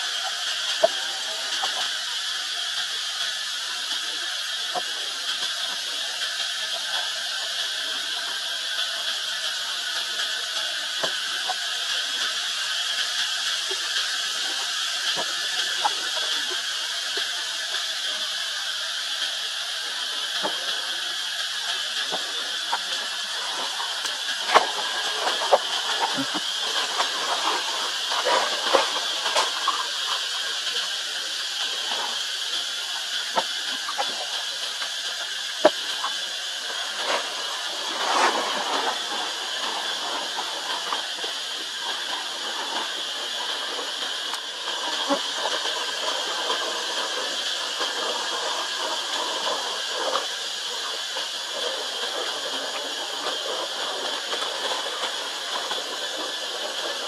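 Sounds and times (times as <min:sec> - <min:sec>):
high-pitched insect drone: 0:00.0 - 0:57.0
rustles and clicks of dry leaves: 0:20.3 - 0:57.0.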